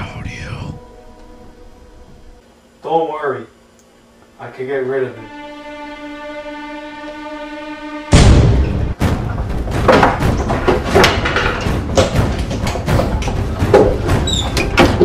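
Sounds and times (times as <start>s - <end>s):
irregular knocks and thumps: 9.0s - 15.0s.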